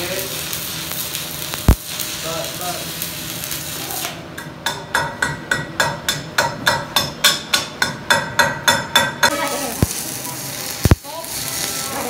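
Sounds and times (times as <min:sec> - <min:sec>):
arc welding sizzle: 0:00.0 - 0:04.4, 0:09.2 - 0:12.0
hammer tapping on metal: 0:04.4 - 0:09.4.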